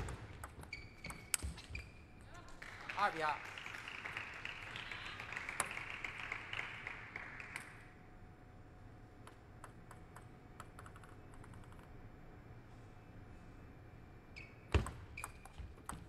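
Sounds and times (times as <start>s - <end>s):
people clapping: 2.4s - 8.0s.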